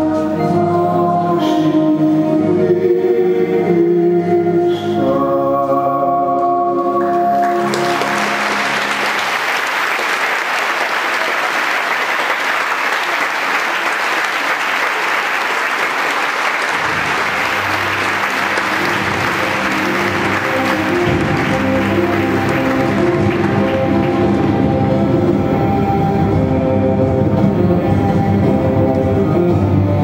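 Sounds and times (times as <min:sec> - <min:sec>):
music with singing: 0:00.0 - 0:09.0, 0:17.1 - 0:30.0
large audience applauding: 0:07.4 - 0:26.0.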